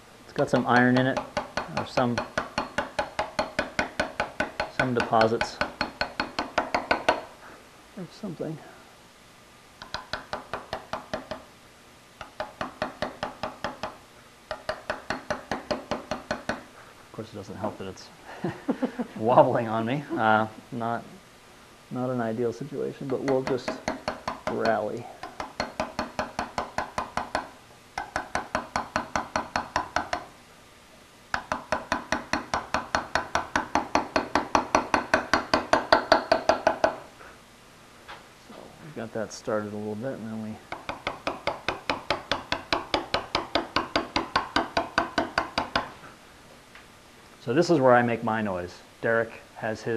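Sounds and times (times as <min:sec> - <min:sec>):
hammer tapping chisel on slate: 0:00.3 - 0:07.3, 0:09.8 - 0:11.5, 0:12.2 - 0:16.7, 0:23.0 - 0:30.3, 0:31.3 - 0:37.1, 0:40.7 - 0:45.9.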